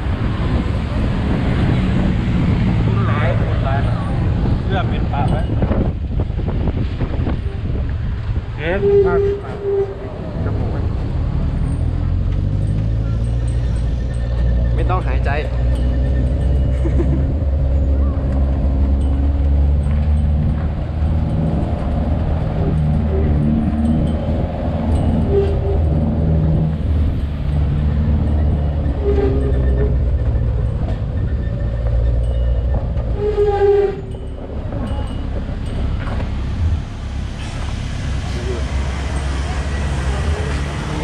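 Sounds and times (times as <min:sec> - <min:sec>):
truck engine and road rumble: 0:00.0 - 0:41.0.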